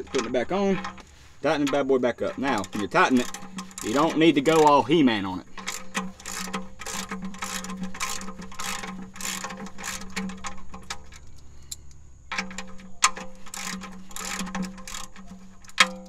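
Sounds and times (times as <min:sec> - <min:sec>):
socket ratchet clicking: 0:01.8 - 0:16.0.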